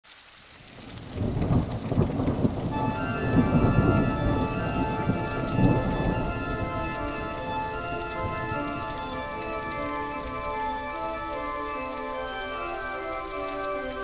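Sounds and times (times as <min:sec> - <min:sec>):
heavy rain: 0:00.0 - 0:14.0
rolling thunder: 0:00.8 - 0:10.9
held musical chord: 0:02.7 - 0:14.0.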